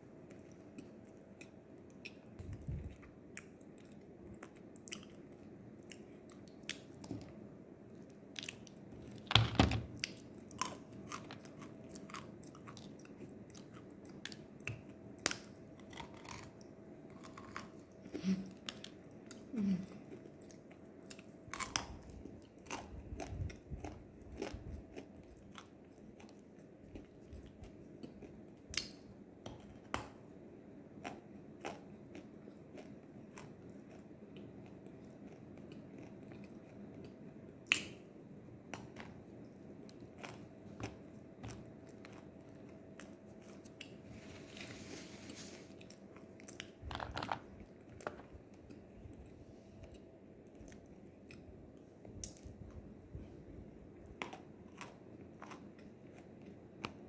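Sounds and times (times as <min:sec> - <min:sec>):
person chewing crunchy clay: 0:10.0 - 0:19.6, 0:20.2 - 0:28.9, 0:54.0 - 0:57.0.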